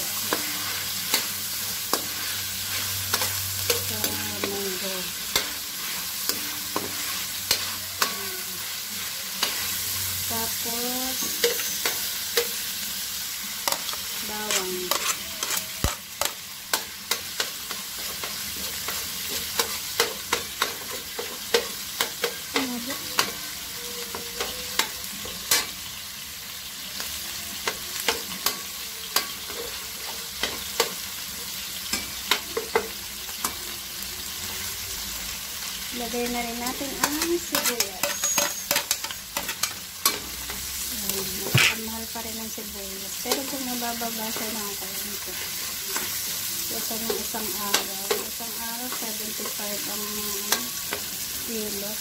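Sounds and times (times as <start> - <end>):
metal spatula scraping a wok: 0.0 - 26.0, 36.4 - 40.7, 41.4 - 41.9
food sizzling in oil: 0.0 - 52.0.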